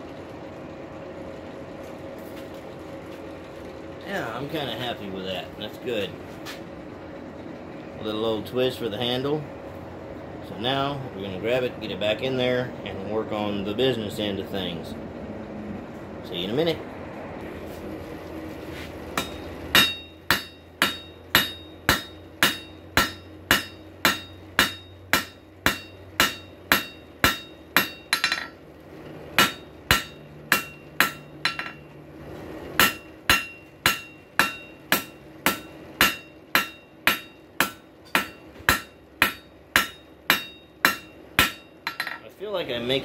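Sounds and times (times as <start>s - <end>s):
hammer striking steel on anvil: 19.2s - 28.6s, 29.4s - 31.9s, 32.8s - 42.3s.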